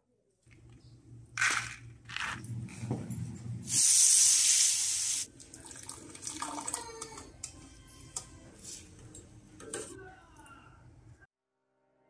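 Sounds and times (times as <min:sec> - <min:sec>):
kitchen tap running: 0:04.1 - 0:07.2.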